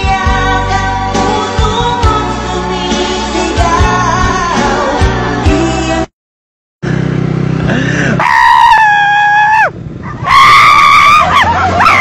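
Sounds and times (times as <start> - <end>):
high-pitched human screams: 8.2 - 12.0.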